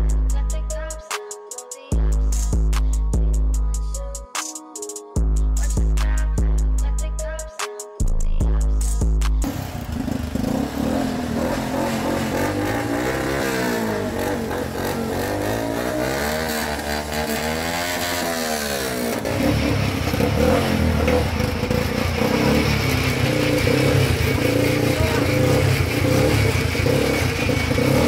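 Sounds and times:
small engine revving: 9.4 - 28.0.

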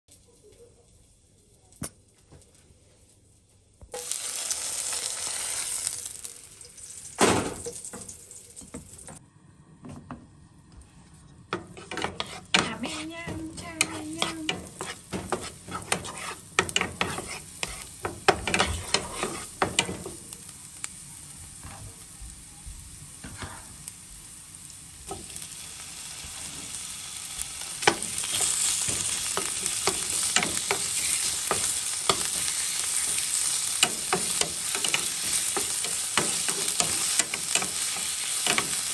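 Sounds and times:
meat sizzling in a pan: 3.9 - 9.1, 13.6 - 38.9
wooden spatula scraping a pan: 11.6 - 20.1, 27.8 - 38.9.

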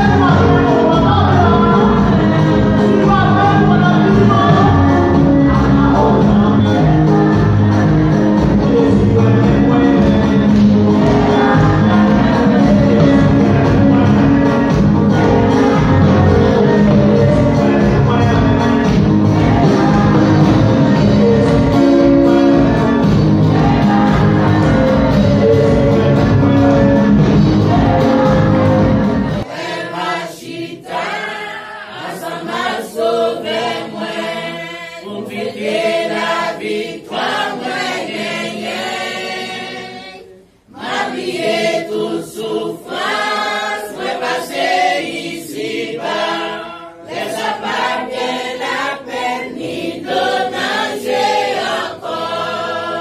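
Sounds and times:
instrumental music with heavy bass: 0.0 - 29.5
amplified worship singing: 0.0 - 53.0
congregation singing a hymn: 0.0 - 53.0.

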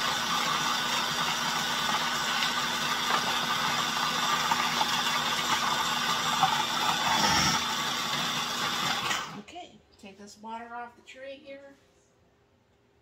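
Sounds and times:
food processor shredding carrots: 0.0 - 9.4.

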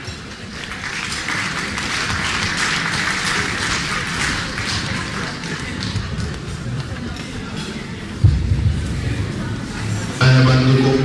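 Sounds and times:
crowd applauding: 0.4 - 6.8.

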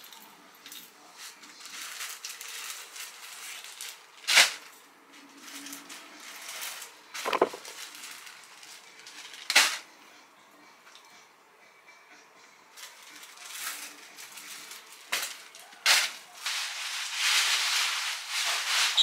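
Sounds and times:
plastic bag rustling: 1.3 - 9.5, 12.9 - 19.0
sharp plastic crackles: 1.6 - 4.7, 5.5 - 9.8.

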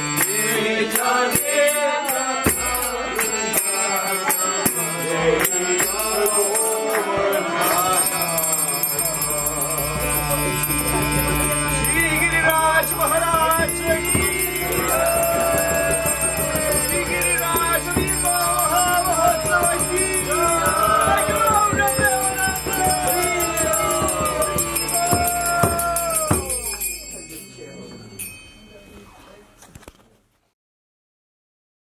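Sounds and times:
harmonium drone: 0.0 - 28.8
man singing: 0.2 - 26.8.

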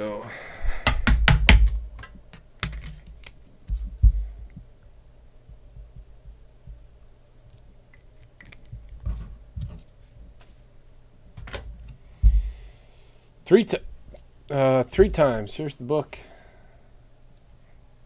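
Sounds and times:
faint low hum: 0.0 - 18.0
keyboard and mouse clicks: 1.6 - 3.4.

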